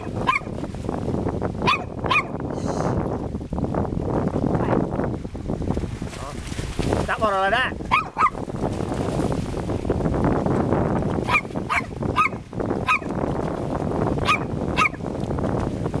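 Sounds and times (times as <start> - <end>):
small dog barking: 0.0 - 0.5, 1.6 - 2.4, 7.9 - 8.4, 11.3 - 13.1, 14.2 - 15.0
water splashing over rocks: 3.4 - 16.0.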